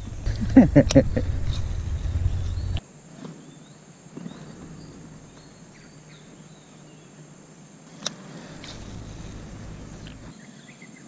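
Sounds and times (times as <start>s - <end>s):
low microphone rumble: 0.0s - 2.8s, 8.6s - 10.3s
high bird chirps: 1.4s - 2.8s.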